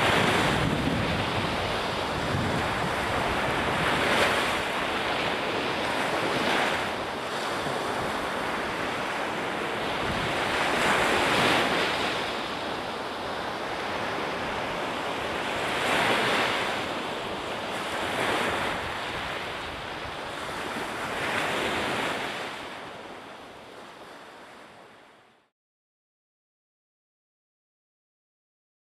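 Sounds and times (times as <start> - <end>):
wind on microphone: 0.0 - 25.0
ocean waves breaking: 0.0 - 25.4.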